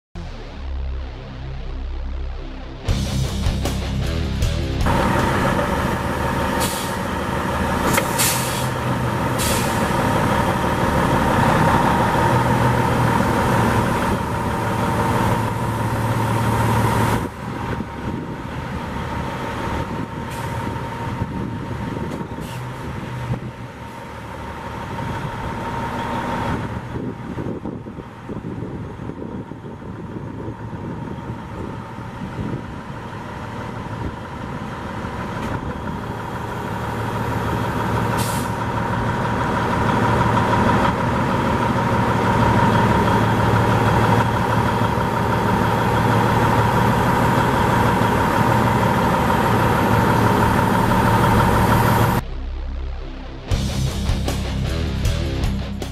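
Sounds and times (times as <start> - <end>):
diesel engine idling: 0.6 - 55.9
short air hisses: 6.6 - 7.0, 7.9 - 9.9, 38.2 - 38.6.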